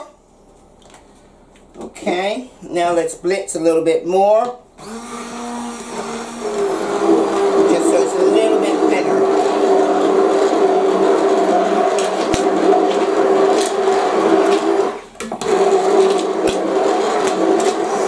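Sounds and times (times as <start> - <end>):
immersion blender running: 4.8 - 18.0.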